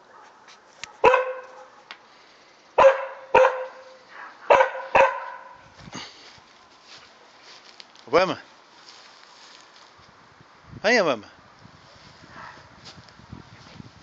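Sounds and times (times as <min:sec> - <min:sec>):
dog barking: 0:00.1 - 0:01.9, 0:02.8 - 0:05.6, 0:12.3 - 0:12.7.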